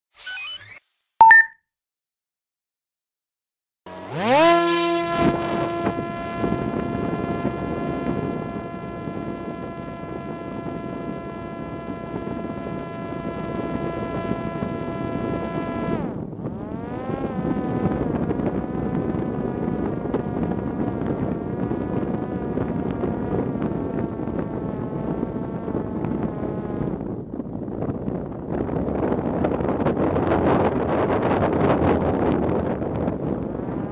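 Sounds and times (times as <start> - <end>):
drone propeller whine: 3.9 - 27.4
rushing wind: 4.1 - 33.9.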